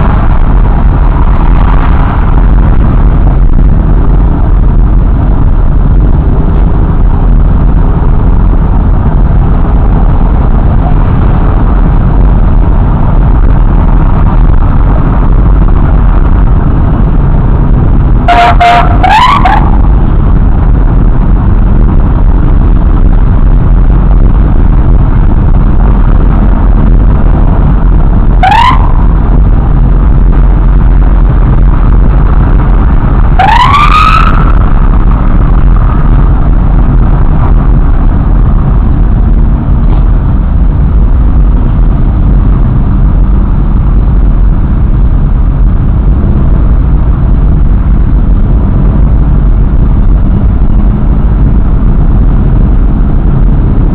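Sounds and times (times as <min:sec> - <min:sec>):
engines rumbling: 0:00.0 - 0:53.9
wind: 0:00.0 - 0:53.9
police siren whoops: 0:18.3 - 0:19.7, 0:28.4 - 0:28.9, 0:33.4 - 0:34.5.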